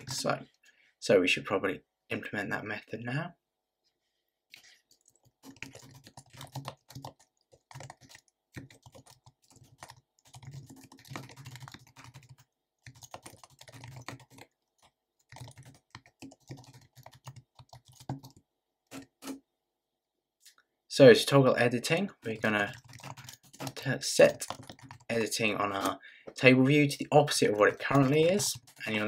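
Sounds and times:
computer keyboard typing: 4.6 - 19.1, 22.3 - 25.2, 27.8 - 29.0.

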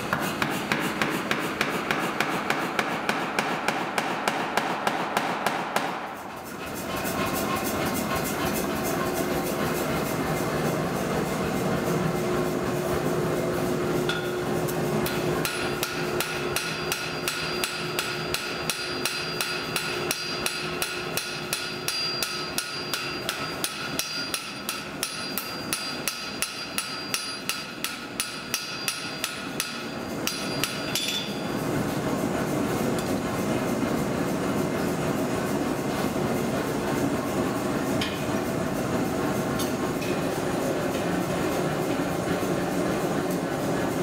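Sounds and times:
steady machine rumble: 0.0 - 44.0
hammer ringing on steel anvil: 14.1 - 14.4, 15.4 - 31.5.

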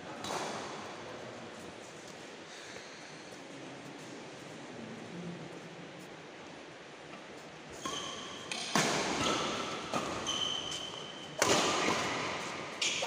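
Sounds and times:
shoes squeaking on court floor: 7.7 - 13.0
rackets hitting shuttlecock: 7.8 - 13.0.

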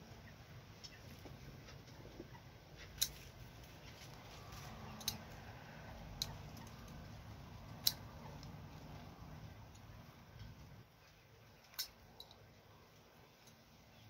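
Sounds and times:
scissors snipping stems: 2.8 - 7.0, 7.7 - 8.6.

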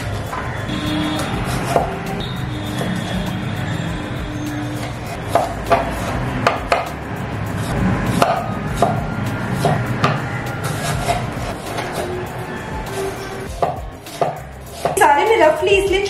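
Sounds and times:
knife chopping on cutting board: 1.2 - 1.9, 5.1 - 6.9, 8.1 - 9.0, 9.6 - 12.1, 13.5 - 15.0.

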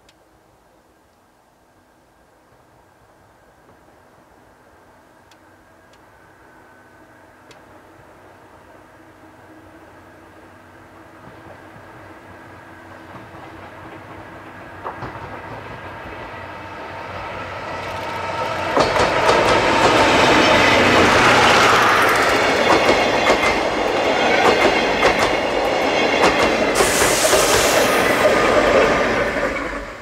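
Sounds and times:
train rumble: 2.5 - 30.0
wheels clacking over rail joints: 13.0 - 27.3.

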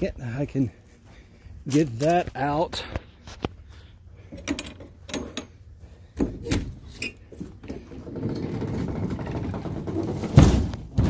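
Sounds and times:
trailer door latch clicks and clanks: 4.3 - 5.6, 6.2 - 7.2.

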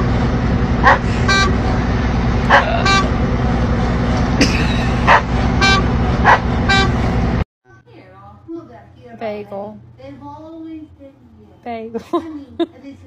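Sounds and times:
harvester engine droning: 0.0 - 7.4.

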